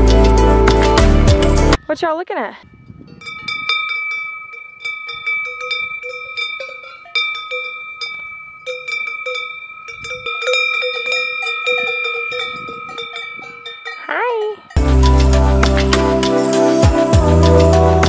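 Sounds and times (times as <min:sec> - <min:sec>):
cowbells clanking: 0:02.7 - 0:16.5.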